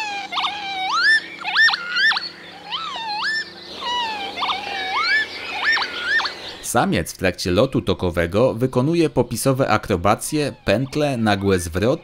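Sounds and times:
lapwing wheezy whistles: 0.0 - 6.6.

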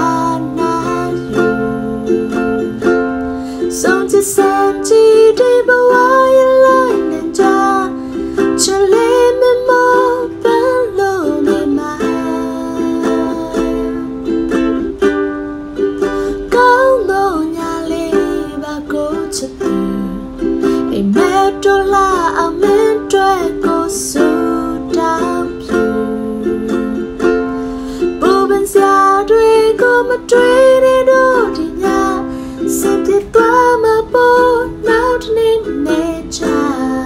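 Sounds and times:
woman singing: 0.0 - 14.9, 16.0 - 37.0
ukulele strumming: 0.0 - 37.0.

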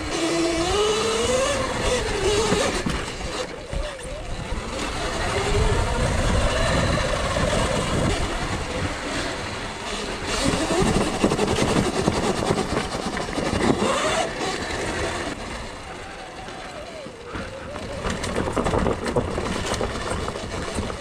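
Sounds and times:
electric motor and chain whine: 0.0 - 21.0
bike rattling knocks: 17.3 - 21.0.

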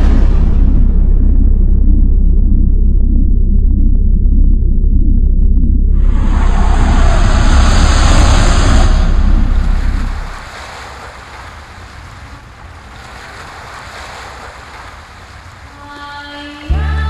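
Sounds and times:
wind buffeting microphone: 5.9 - 15.7
surf on a pebble beach: 6.4 - 16.8.

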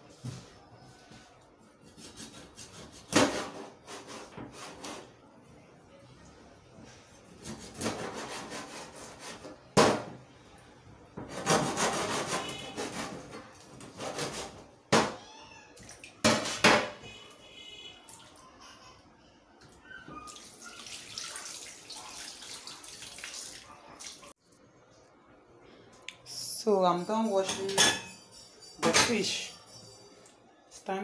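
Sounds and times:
knife sawing through fish: 1.8 - 3.1, 7.4 - 9.5, 11.3 - 13.3.

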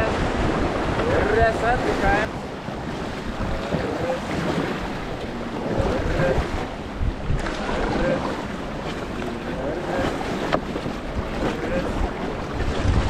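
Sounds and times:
river rushing and splashing: 0.0 - 13.0
wind buffeting microphone: 0.0 - 13.0.

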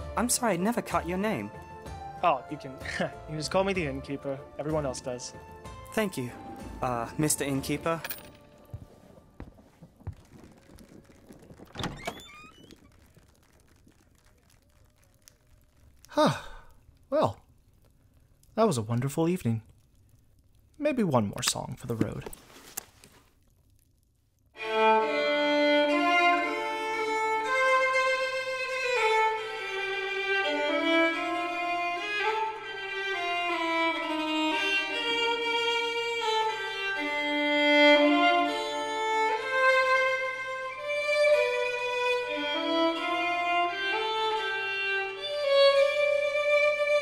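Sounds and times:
fiddle melody: 0.0 - 9.7, 24.6 - 47.0.

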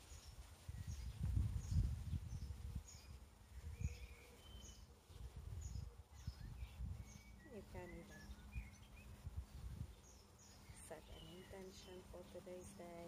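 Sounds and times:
songbird chirping: 0.0 - 13.0
wind buffeting microphone: 0.0 - 13.0.

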